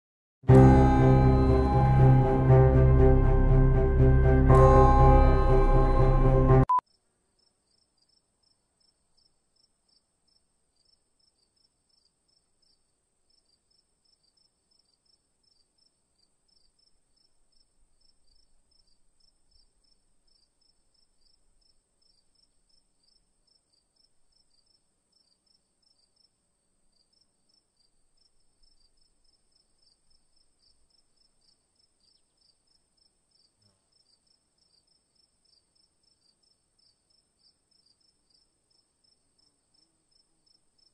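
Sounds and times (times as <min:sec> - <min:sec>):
music: 0:00.5 - 0:06.7
faint cricket chirping: 0:06.8 - 0:40.9.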